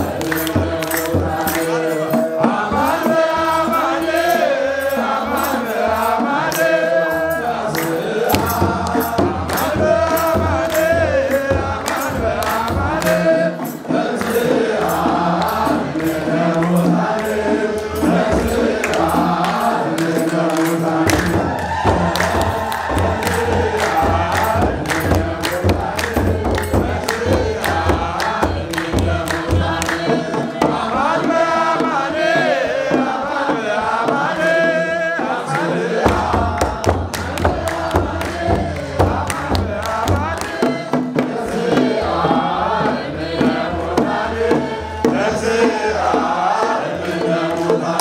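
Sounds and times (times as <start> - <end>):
hand clapping: 0.0 - 3.6, 5.4 - 31.1, 35.5 - 41.9, 47.0 - 48.0
deep drum beats: 0.0 - 4.2, 8.0 - 48.0
congregation singing a hymn: 0.0 - 48.0.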